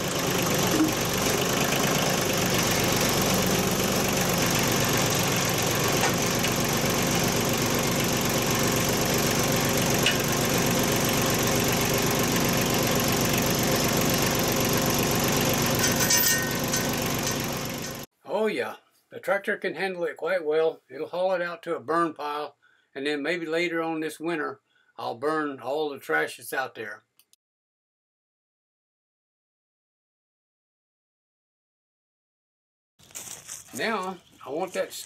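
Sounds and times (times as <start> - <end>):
diesel tractor engine starting: 0.0 - 18.1.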